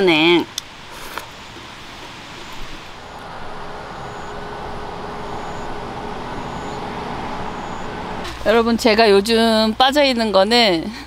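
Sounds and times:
steady traffic noise: 0.0 - 11.0
large truck passing: 2.7 - 9.8.

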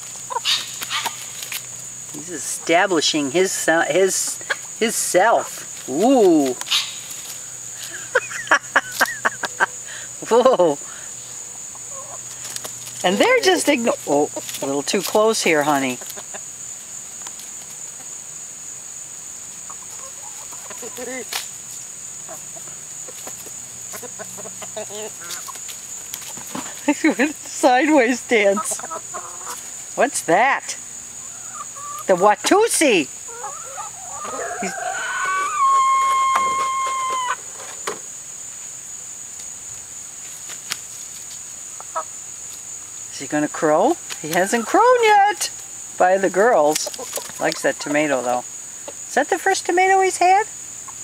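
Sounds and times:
chickens clucking: 0.0 - 51.0
insects droning: 0.0 - 51.0.

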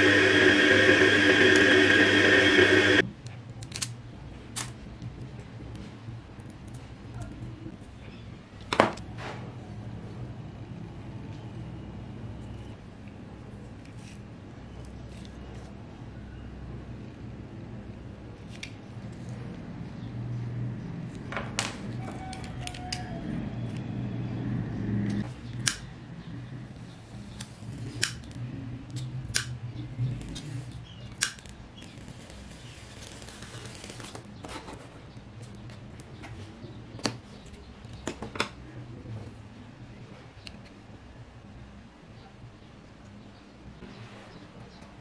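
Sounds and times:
low steady hum: 0.0 - 3.3.

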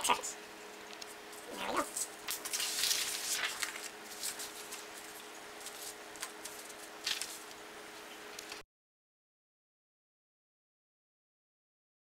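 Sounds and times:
faint steady hum: 0.0 - 8.6
paper rustling and sliding: 1.9 - 7.6.

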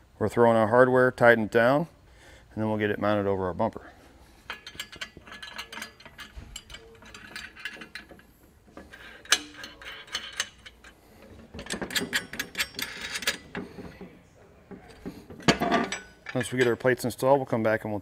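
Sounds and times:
metal hardware clicking and clinking: 4.4 - 17.3
sharp metal clank: 14.8 - 17.0.

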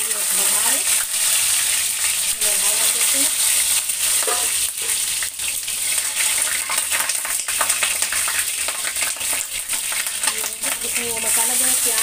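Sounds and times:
spices sizzling in hot oil: 0.0 - 12.0
metal spoon stirring: 4.1 - 5.0.

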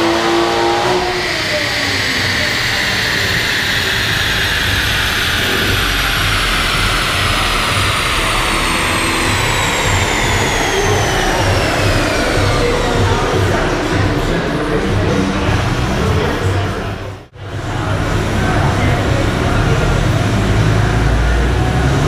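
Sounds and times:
dyno roller whine: 0.0 - 22.0
low rumble: 0.8 - 22.0.

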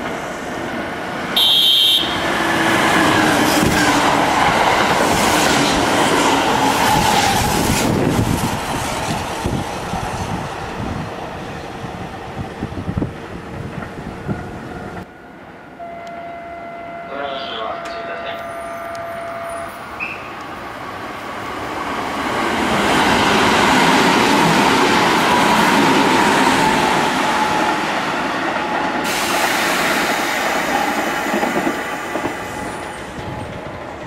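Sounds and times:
train rushing and wheels clattering: 0.0 - 1.4, 2.2 - 15.6, 17.2 - 34.0
train horn blast: 1.4 - 2.4, 15.8 - 19.8.

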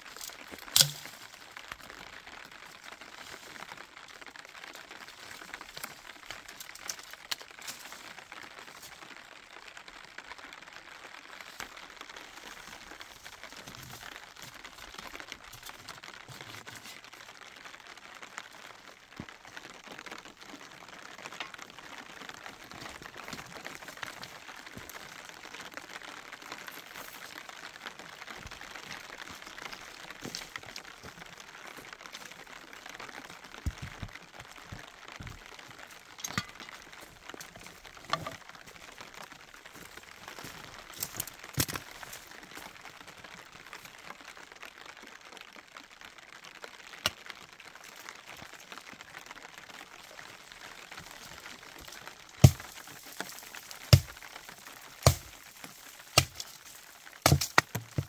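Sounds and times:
sharp knocks and cracks: 0.2 - 1.4, 52.4 - 58.0.

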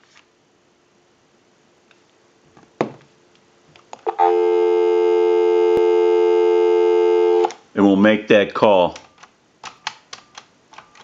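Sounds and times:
telephone dial tone: 4.1 - 7.5.

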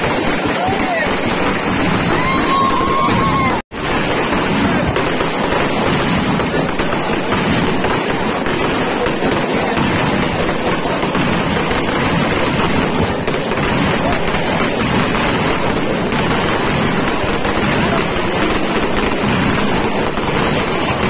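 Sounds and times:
ground fireworks crackling: 0.0 - 21.0.

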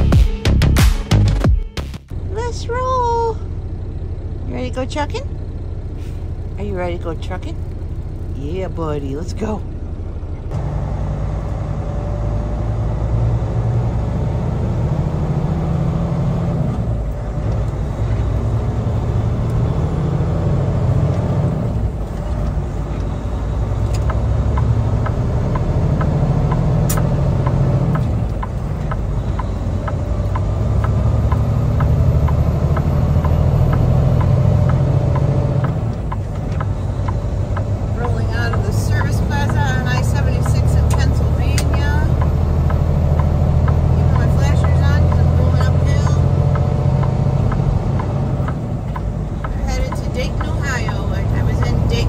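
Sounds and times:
truck engine and road rumble: 0.0 - 52.0
light ticking: 22.0 - 52.0
sharp click: 26.5 - 27.1.

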